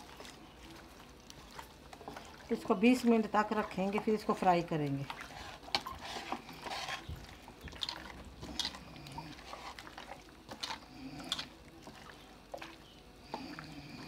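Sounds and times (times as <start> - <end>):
hands squelching raw chicken: 4.8 - 14.0.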